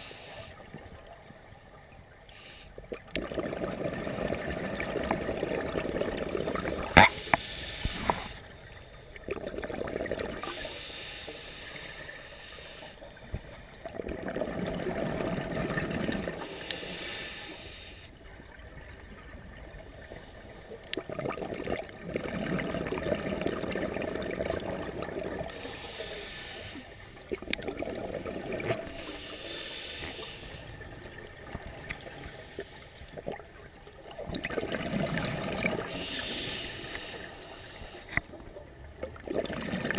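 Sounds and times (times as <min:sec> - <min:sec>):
exhaled bubbles gurgling underwater: 0:00.0 - 0:39.9
diver inhaling through regulator: 0:06.6 - 0:09.2, 0:10.4 - 0:13.0, 0:16.4 - 0:18.2, 0:25.5 - 0:27.2, 0:28.8 - 0:30.8, 0:35.6 - 0:38.2.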